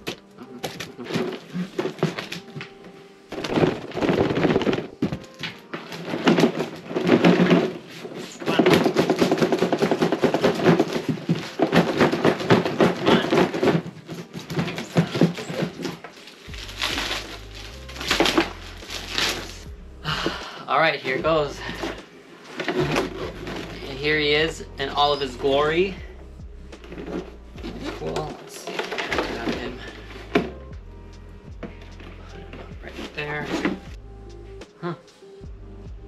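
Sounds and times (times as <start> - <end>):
cardboard scraping and rustling: 0.6 - 19.6, 21.6 - 24.0, 26.8 - 30.5.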